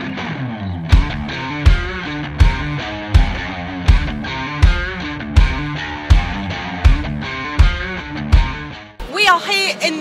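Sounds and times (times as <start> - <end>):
guitar music with heavy drums: 0.0 - 9.2.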